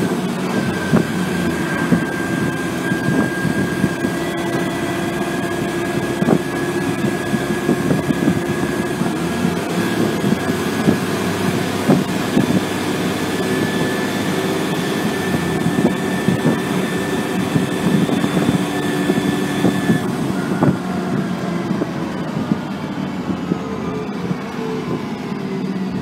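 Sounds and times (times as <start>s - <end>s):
bus engine whining: 0.0s - 26.0s.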